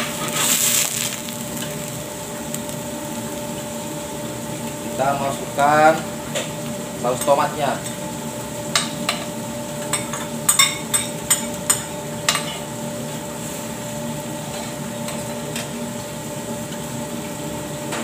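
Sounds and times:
steady background hum: 0.0 - 18.0
sauce scraped into pan: 0.1 - 1.8
metal spoon clinking on dishes: 9.9 - 12.6.

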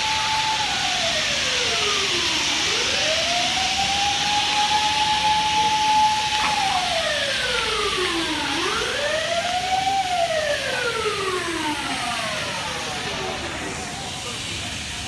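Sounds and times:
emergency siren wailing: 0.0 - 15.0
steady rushing noise: 9.8 - 15.0.

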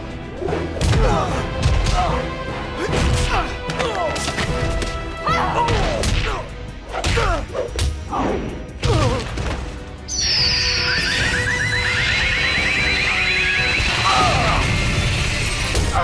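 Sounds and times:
orchestral score: 0.0 - 16.0
high warbling sonic scream: 10.2 - 14.8.

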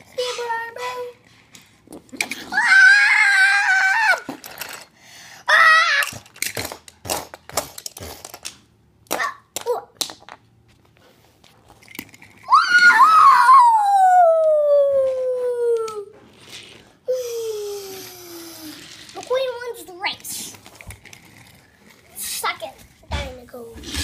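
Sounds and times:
child screaming: 2.5 - 4.3, 12.5 - 16.1
toy cars clacking on table: 4.1 - 4.9, 6.0 - 10.4
child wailing: 12.5 - 16.1.

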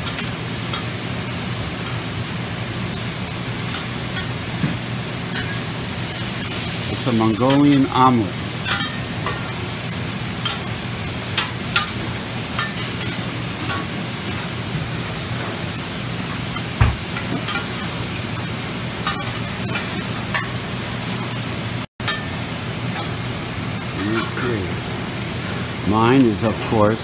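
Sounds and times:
food sizzling on a griddle: 0.0 - 27.0
dull thump: 16.8 - 17.1.

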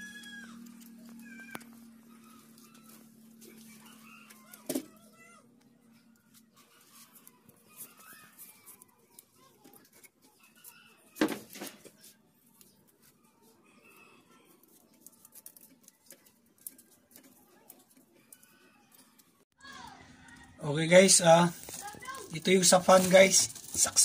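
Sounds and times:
wire handling clicks and rustles: 14.6 - 19.4, 21.1 - 24.0.

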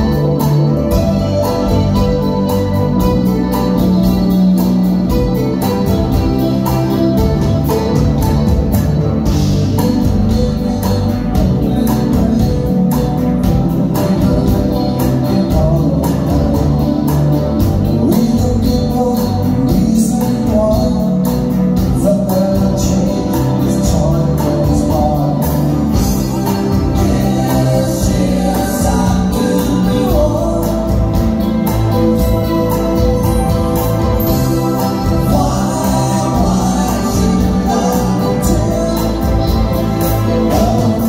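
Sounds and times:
live band playing: 0.0 - 41.0
man singing: 9.2 - 33.2, 33.8 - 41.0.

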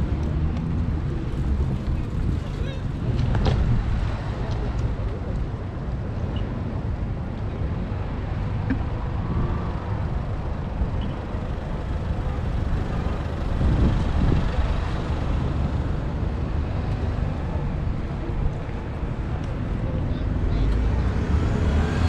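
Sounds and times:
cars driving past: 7.6 - 22.0.

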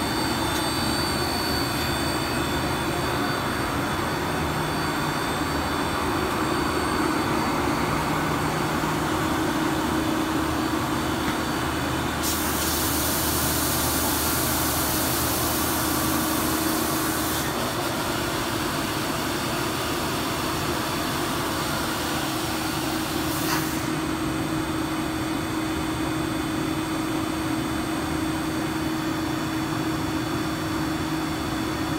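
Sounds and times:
machine hum: 0.0 - 12.2
harsh air hiss: 12.2 - 15.7.

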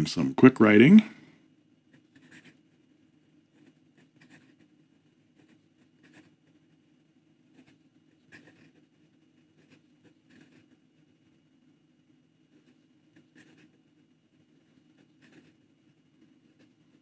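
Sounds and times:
fountain pen scratching on paper: 1.9 - 2.9, 3.5 - 6.8, 7.5 - 10.9, 12.5 - 13.9, 14.6 - 17.0.

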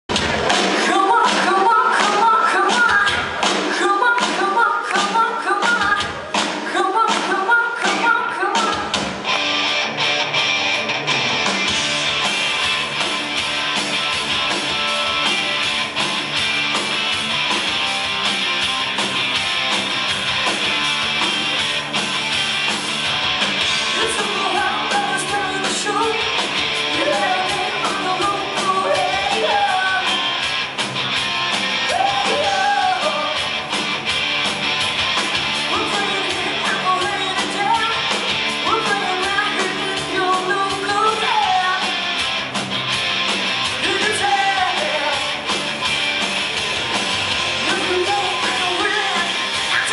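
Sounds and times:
distorted electric guitars: 0.0 - 49.9
hard rock band playing: 0.0 - 49.9
woman singing: 0.8 - 9.0, 24.0 - 30.2, 31.9 - 33.4, 35.7 - 42.0, 43.8 - 45.3, 47.6 - 49.9.

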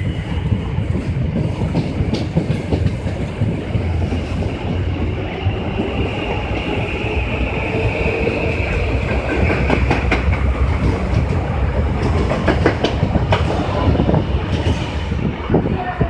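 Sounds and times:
train low rumble: 0.0 - 16.0
wheels clacking over rail joints: 9.0 - 15.1.

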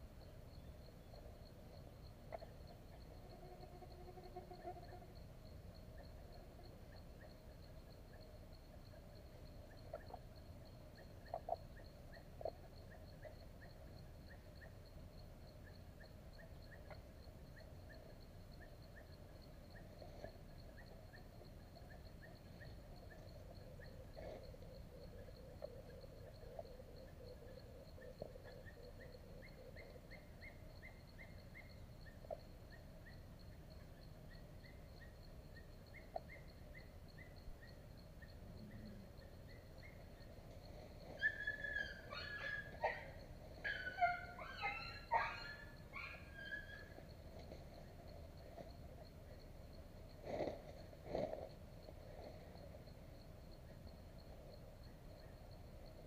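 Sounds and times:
insect whine: 0.0 - 56.0
soft insect chirps: 0.0 - 56.0.

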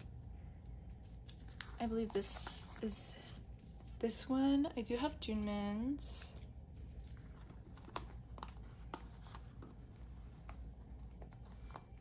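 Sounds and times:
plastic sleeves crinkling and clicking: 5.2 - 12.0.

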